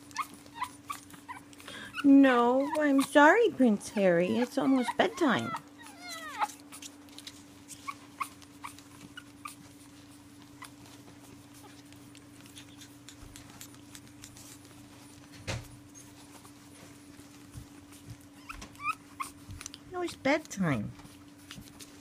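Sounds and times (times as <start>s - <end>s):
puppies whimpering and squeaking: 0.0s - 20.4s
steady low hum: 0.0s - 22.0s.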